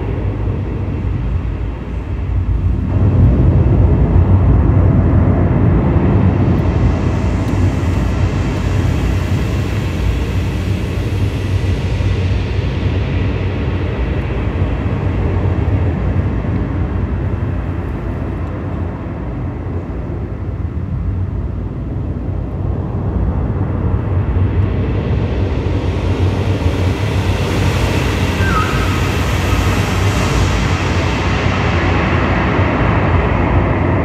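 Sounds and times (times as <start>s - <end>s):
rumbling synthesizer noise music: 0.0s - 34.0s
falling electronic chirp: 28.4s - 29.8s.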